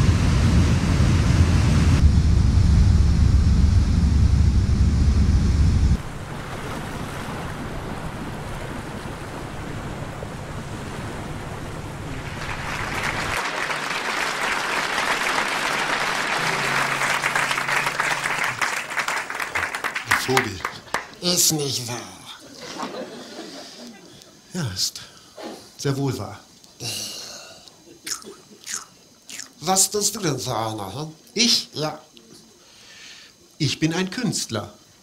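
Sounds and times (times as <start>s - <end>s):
wind on deck: 0.0s - 13.4s
sea and wake rushing: 5.5s - 19.4s
audience applauding: 12.0s - 21.6s.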